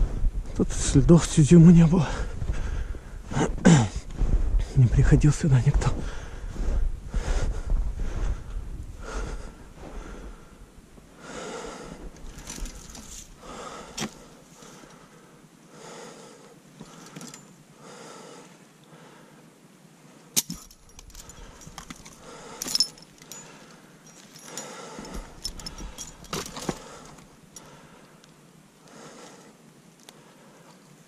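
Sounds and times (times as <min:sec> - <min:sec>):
person breathing heavily: 0:02.0 - 0:04.8, 0:05.9 - 0:19.5, 0:21.1 - 0:28.2, 0:28.8 - 0:29.6.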